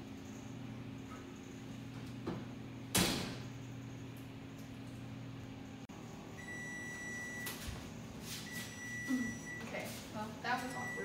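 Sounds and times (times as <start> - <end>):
steady low hum: 0.0 - 11.0
oven door thump: 2.2 - 3.5
oven timer beep: 6.4 - 7.8, 8.4 - 9.9, 10.5 - 11.0.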